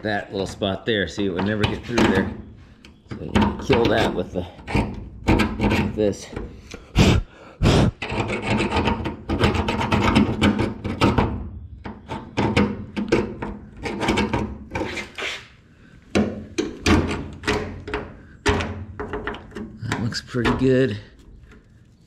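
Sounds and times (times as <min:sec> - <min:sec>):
metal scraping on metal: 0:03.2 - 0:06.3, 0:07.8 - 0:11.2, 0:13.7 - 0:15.6.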